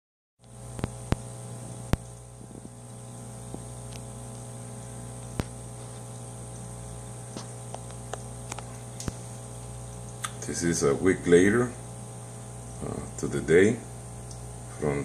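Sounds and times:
aquarium air pump humming: 0:00.4 - 0:15.0
soft bubbling: 0:00.8 - 0:10.5.

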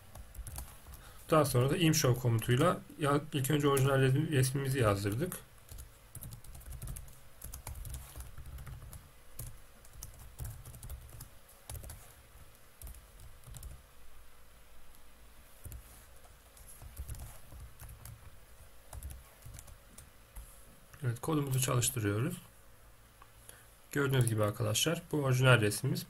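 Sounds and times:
computer keyboard typing: 0:00.1 - 0:01.0, 0:05.1 - 0:12.1, 0:12.8 - 0:13.8, 0:15.6 - 0:18.3, 0:18.9 - 0:20.1.

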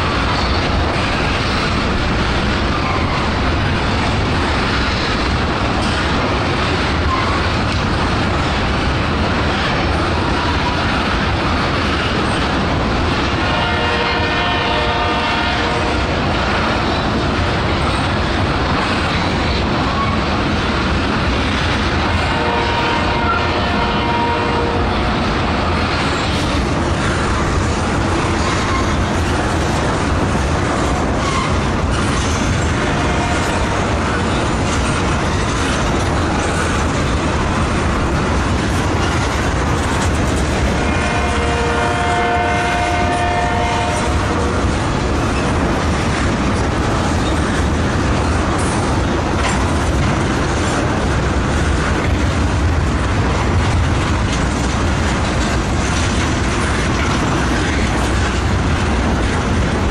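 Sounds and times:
freight train rumbling past: 0:00.0 - 0:59.9
wheels clacking over rail joints: 0:00.0 - 0:59.9
multi-pitch train horn: 0:13.4 - 0:16.2, 0:22.2 - 0:24.9, 0:32.8 - 0:33.9, 0:40.8 - 0:44.5.

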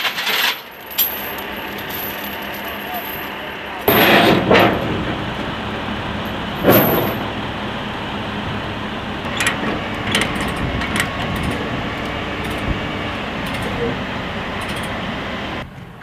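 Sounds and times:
metal chains clinking: 0:00.0 - 0:04.9, 0:06.2 - 0:07.3
vehicle engine running: 0:00.0 - 0:16.0.

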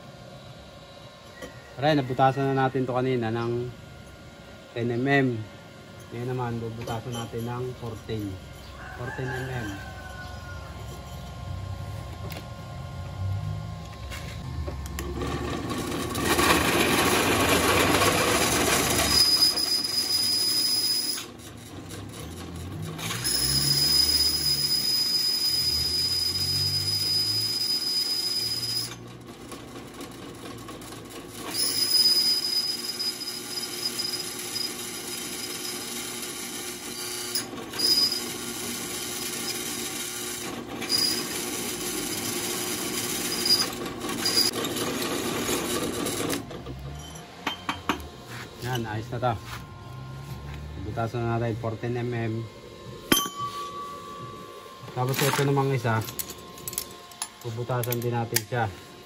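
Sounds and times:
high squeal of cutting: 0:08.2 - 0:11.3, 0:18.9 - 0:21.3, 0:23.0 - 0:28.9, 0:31.5 - 0:34.8, 0:37.0 - 0:38.4, 0:40.8 - 0:41.4, 0:43.2 - 0:44.6
drill press boring metal: 0:14.9 - 0:21.6, 0:22.2 - 0:29.9, 0:30.6 - 0:48.9.

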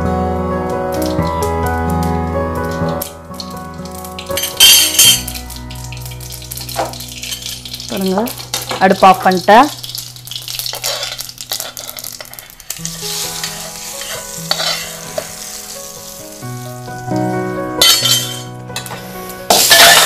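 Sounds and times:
background music with held notes: 0:00.0 - 0:20.0
hot oil sizzling and crackling: 0:00.8 - 0:20.0
spoon scraping a pan: 0:09.8 - 0:15.8, 0:17.8 - 0:20.0.

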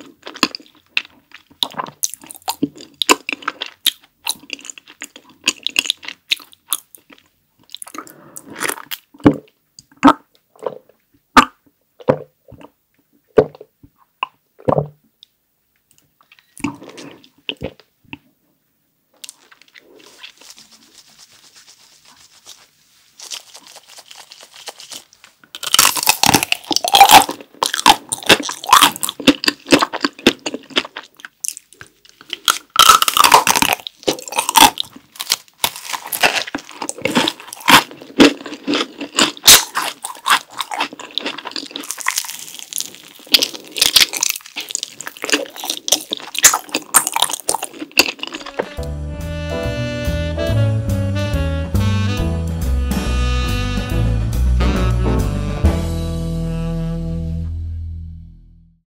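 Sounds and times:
crunching and chewing chocolate shell: 0:00.0 - 0:09.5, 0:23.2 - 0:48.6.

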